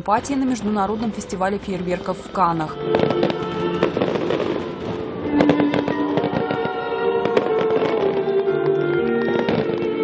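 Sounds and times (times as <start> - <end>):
fireworks bangs and crackling: 0.0 - 10.0
music with long held notes: 2.6 - 10.0.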